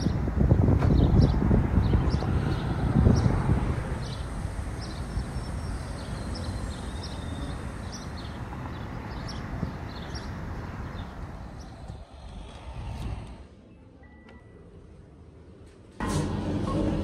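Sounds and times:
wind on microphone: 0.0 - 7.2, 7.8 - 13.6
road traffic: 0.0 - 17.0.

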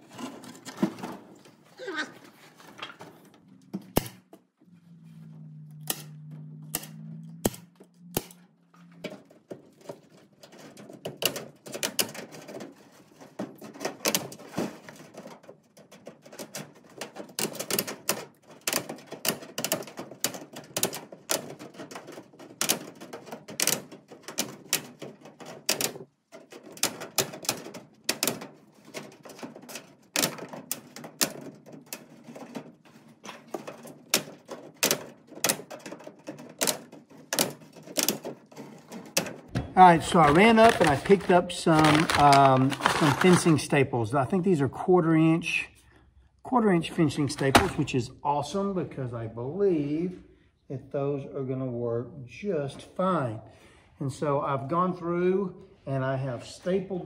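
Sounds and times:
tin snips cutting wire mesh: 5.8 - 8.4.

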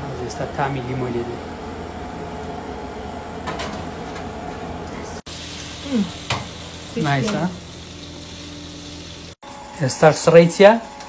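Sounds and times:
roasting tin sizzling: 5.3 - 11.0.

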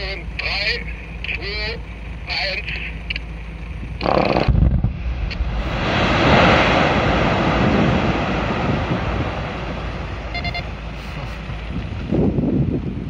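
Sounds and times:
rock blast rumble: 3.7 - 10.8
high beep: 10.3 - 10.7.

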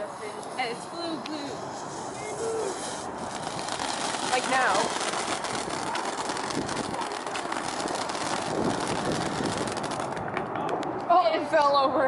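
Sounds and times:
firework fountain hissing and crackling: 0.0 - 11.0.

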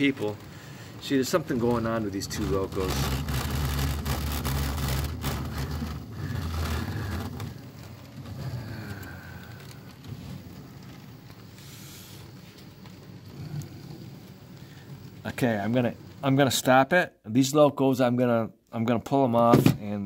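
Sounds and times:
model locomotives rumbling: 0.0 - 16.6.

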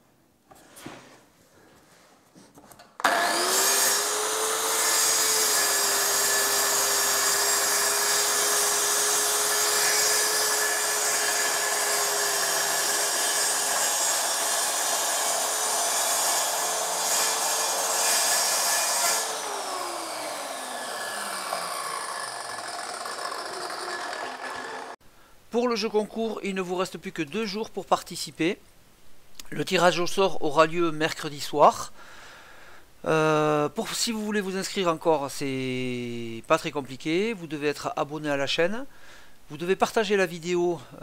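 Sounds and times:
circular saw cutting board: 3.0 - 25.0.

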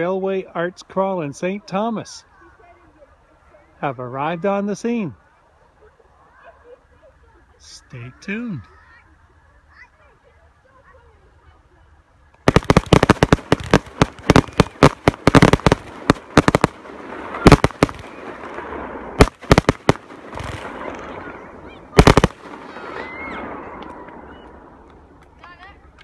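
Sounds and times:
fireworks bangs and crackling: 12.4 - 25.3.

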